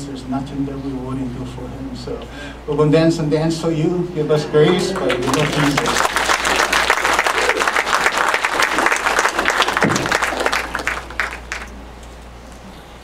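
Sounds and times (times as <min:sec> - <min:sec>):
crowd applauding: 0:04.6 - 0:11.8.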